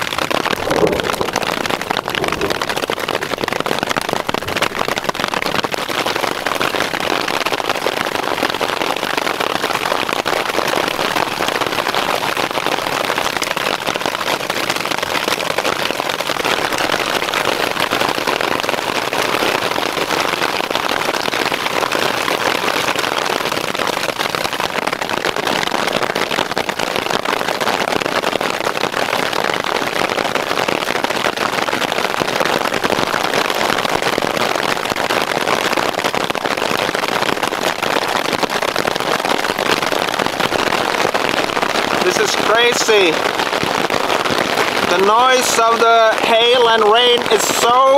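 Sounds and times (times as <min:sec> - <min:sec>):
hail and rain on a tarp: 0:00.0 - 0:47.9.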